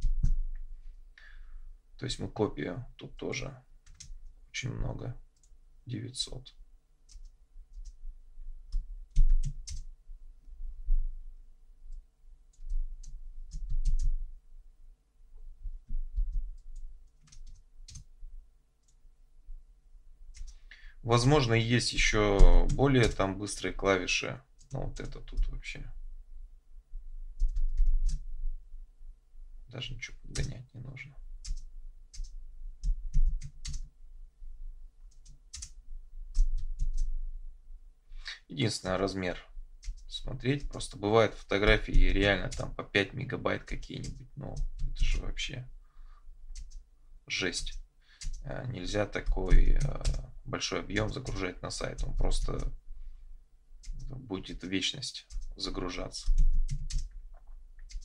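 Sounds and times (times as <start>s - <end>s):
computer keyboard keystrokes: 3.8s - 4.2s, 8.7s - 9.9s, 12.5s - 14.1s, 16.2s - 18.1s, 27.4s - 28.2s, 31.4s - 33.9s, 35.1s - 37.1s, 47.6s - 48.4s, 56.2s - 57.1s, 57.8s - 58.0s.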